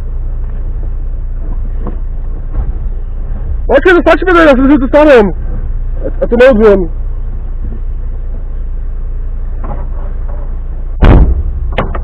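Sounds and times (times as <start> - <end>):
vehicle engine idling: 0.0 - 12.0
loud thump: 11.0 - 12.0.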